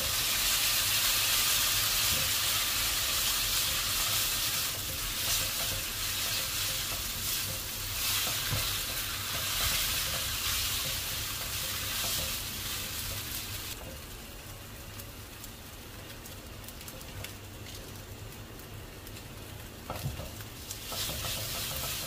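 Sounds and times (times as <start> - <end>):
chopsticks and spatula scraping: 0.0 - 13.8, 20.6 - 22.0
noodles sizzling in oil: 0.0 - 22.0.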